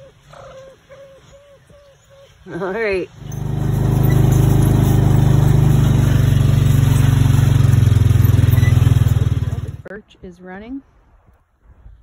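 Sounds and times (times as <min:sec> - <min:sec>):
engine running: 0:03.2 - 0:09.9.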